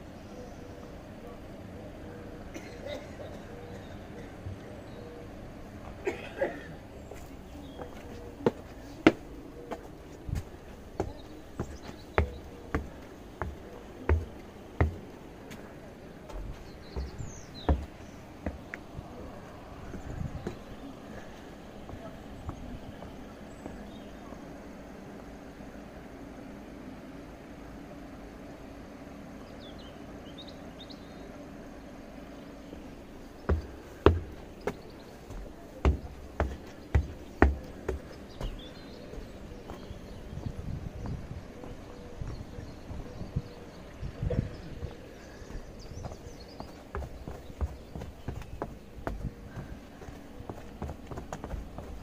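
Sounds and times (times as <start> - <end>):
low outdoor rumble: 0.0 - 52.0
bird chirp: 6.9 - 15.2, 16.2 - 24.4, 32.3 - 52.0
footsteps on steel steps: 7.1 - 24.0, 33.1 - 43.6, 44.9 - 52.0.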